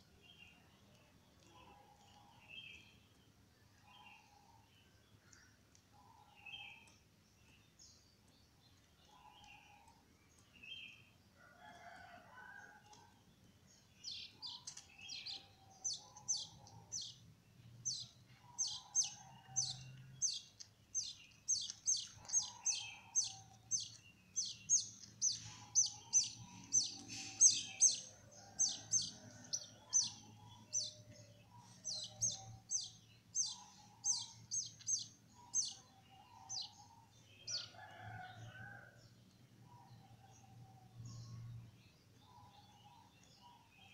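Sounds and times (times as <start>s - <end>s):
chicks chirping high: 17.9s - 35.8s.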